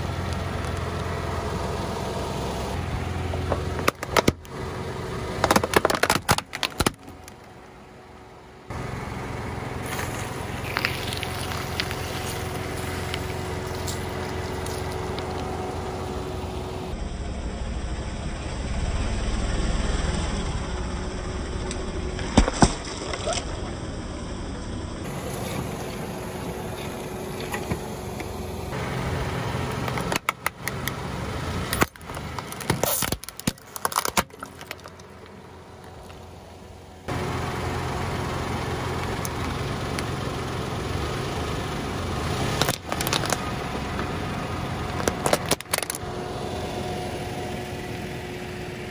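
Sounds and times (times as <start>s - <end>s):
car engine idling: 0.0s - 48.9s
sharp cracks and pops: 3.8s - 4.5s, 5.4s - 7.6s, 9.9s - 15.5s, 21.7s - 23.6s, 31.7s - 36.2s, 42.6s - 43.5s, 44.9s - 46.0s
tyre crushing objects: 31.8s - 35.2s.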